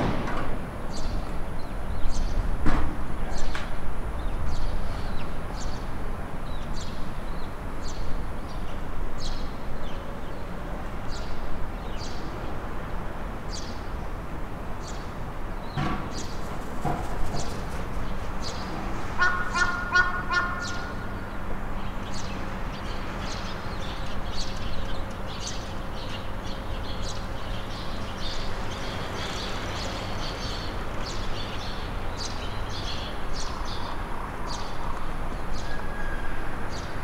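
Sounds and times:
birds chirping: 0:00.8 - 0:02.6, 0:14.8 - 0:37.0
harsh honking call: 0:19.2 - 0:21.0.

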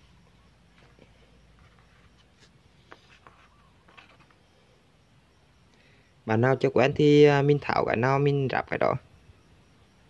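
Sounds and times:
faint clicks and rustles of parts: 0:00.7 - 0:04.5.

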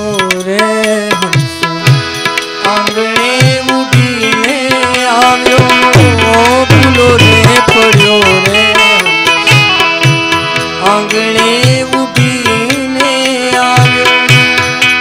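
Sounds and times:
hand drum beating: 0:00.0 - 0:15.0
harmonium melody: 0:00.0 - 0:15.0.

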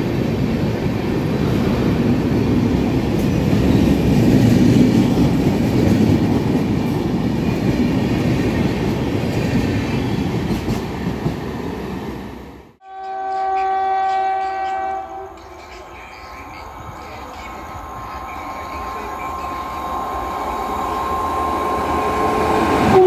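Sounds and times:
train coaches rumbling past: 0:00.0 - 0:23.0
locomotive horn blast: 0:12.8 - 0:15.4, 0:21.6 - 0:23.0.

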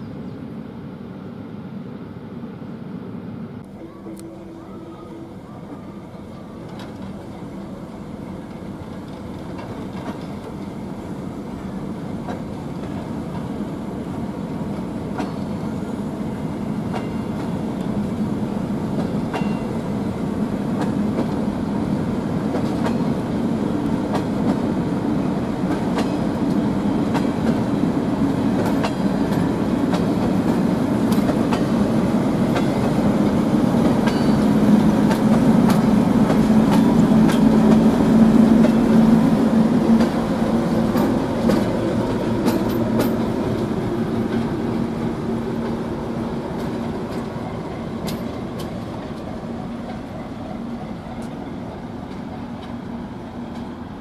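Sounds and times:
diesel locomotive engine running: 0:00.0 - 0:54.0
wheels clicking over rail joints: 0:08.4 - 0:10.8, 0:19.0 - 0:19.7, 0:25.6 - 0:39.2, 0:39.8 - 0:44.6, 0:46.5 - 0:53.8.

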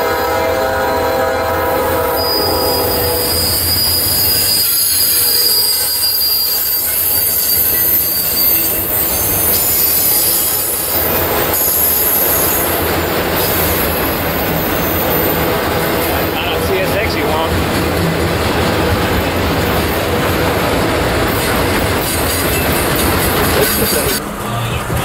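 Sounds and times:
locomotive horn: 0:00.0 - 0:06.4
rumble of rail cars: 0:00.0 - 0:25.0
train wheels squealing: 0:01.8 - 0:16.8.

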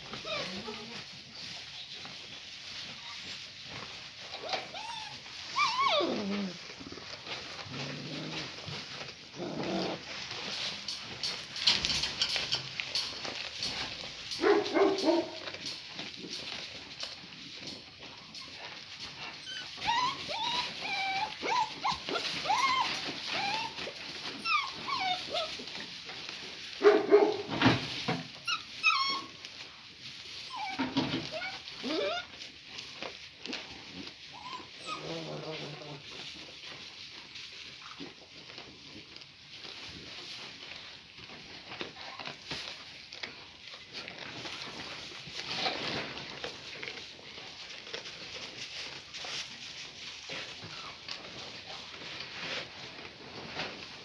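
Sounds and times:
dog whining: 0:00.1 - 0:01.0, 0:04.3 - 0:06.9, 0:19.2 - 0:25.7, 0:28.4 - 0:29.4, 0:30.4 - 0:32.4, 0:34.3 - 0:36.0
puppies whimpering and yipping: 0:00.1 - 0:10.0, 0:18.2 - 0:25.9, 0:28.3 - 0:29.6, 0:30.2 - 0:32.5, 0:34.0 - 0:36.1
dog growling: 0:05.9 - 0:06.6, 0:07.6 - 0:08.6, 0:09.3 - 0:10.1, 0:34.8 - 0:36.1.

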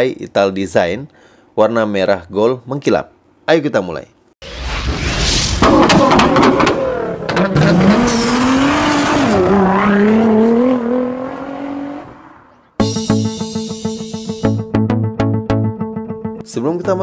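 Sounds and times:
sharp cracks: 0:04.6 - 0:07.6
car engine revving: 0:05.6 - 0:12.6.

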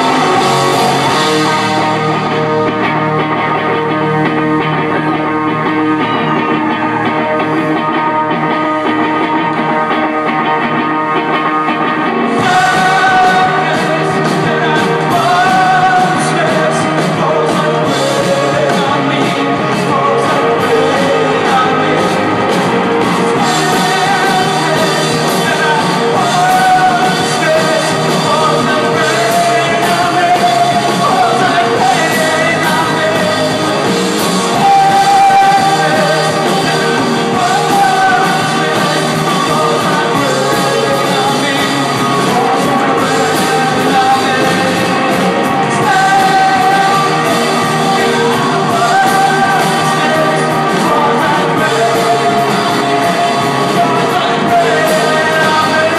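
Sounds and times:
live rock band playing: 0:00.0 - 0:55.9
singer's voice: 0:00.0 - 0:55.9.

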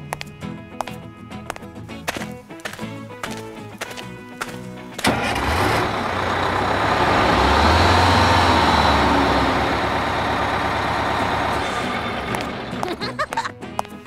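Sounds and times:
vehicle engine driving off: 0:05.0 - 0:13.4.

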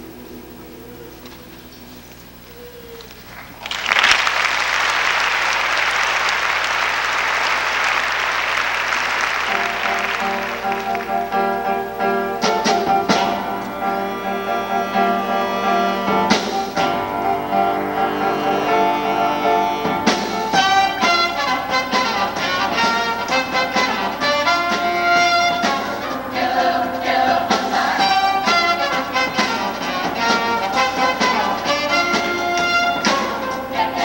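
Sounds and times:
audience applause: 0:03.3 - 0:11.9
live band playing chords: 0:08.5 - 0:34.0.

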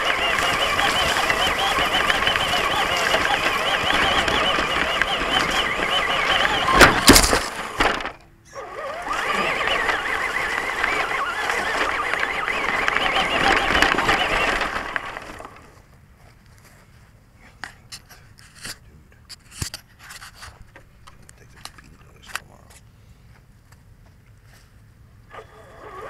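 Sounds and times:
rc truck motor whining: 0:00.0 - 0:15.8, 0:25.3 - 0:26.0.

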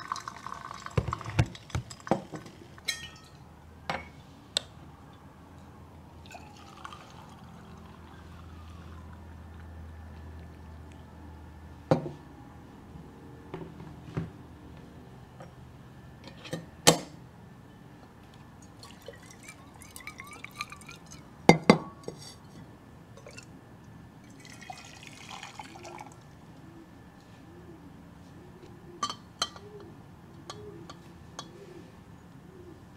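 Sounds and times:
coffee ware clinking: 0:00.1 - 0:04.2
water swirling in glass: 0:06.3 - 0:09.2, 0:18.8 - 0:21.2, 0:24.4 - 0:26.2.

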